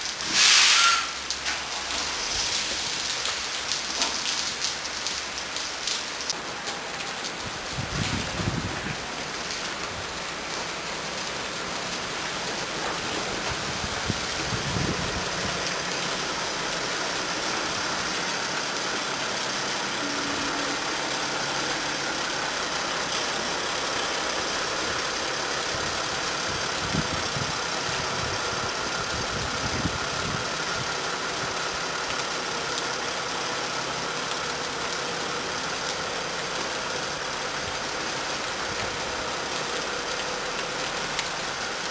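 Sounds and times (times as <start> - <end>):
truck engine running at low revs: 6.3 - 41.9.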